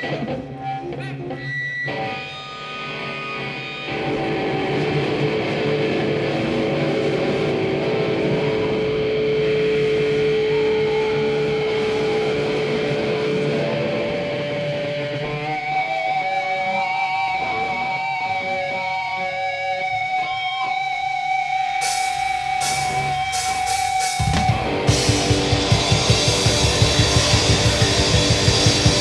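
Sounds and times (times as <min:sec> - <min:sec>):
electric guitar feedback tones: 0:00.0 - 0:29.0
cymbal crashes: 0:21.8 - 0:29.0.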